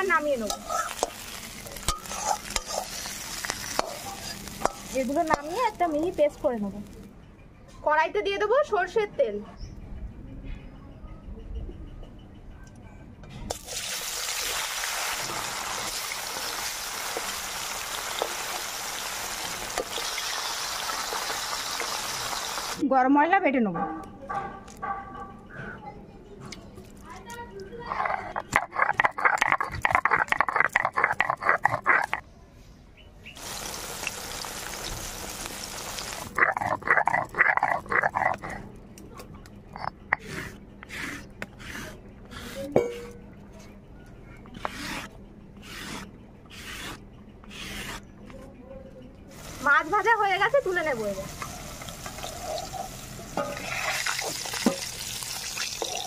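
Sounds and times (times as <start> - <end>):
fish frying in hot oil: 13.6 - 22.8, 33.4 - 36.4, 51.5 - 56.0
stone roller rasping on slab: 39.8 - 43.0, 44.6 - 48.1.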